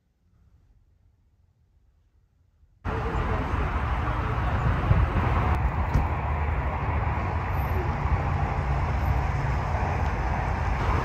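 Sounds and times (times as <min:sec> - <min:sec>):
vehicle road and engine rumble: 0:02.8 - 0:11.0.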